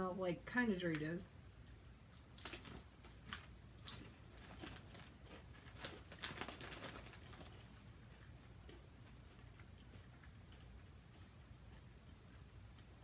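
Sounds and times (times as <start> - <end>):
potato chips crunching: 2.2 - 10.8
foil bag crinkling: 2.3 - 7.8.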